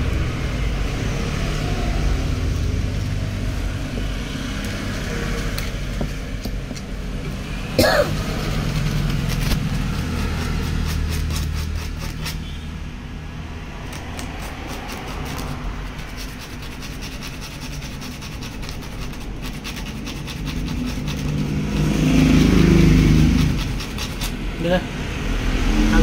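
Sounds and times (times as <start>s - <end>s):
low vehicle rumble: 0.0s - 16.8s
emery paper scraping metal: 8.1s - 12.8s, 13.8s - 24.4s.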